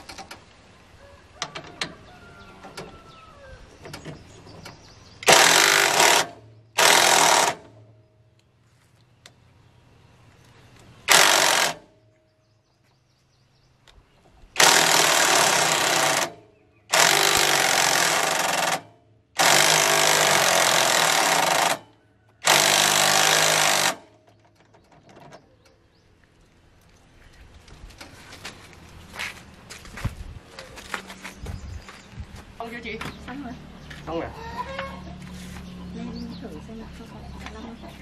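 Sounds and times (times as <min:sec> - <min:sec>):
impact wrench hammering: 0:05.2 - 0:07.7, 0:11.1 - 0:11.8, 0:14.6 - 0:21.8, 0:22.4 - 0:24.0.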